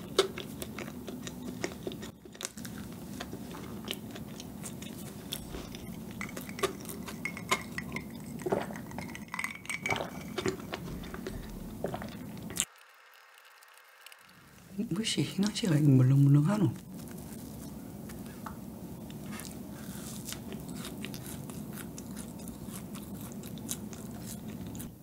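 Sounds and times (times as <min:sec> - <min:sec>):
chewing pastry: 0:00.0 - 0:14.3, 0:15.3 - 0:25.0
ice clinking in glass: 0:06.2 - 0:10.8.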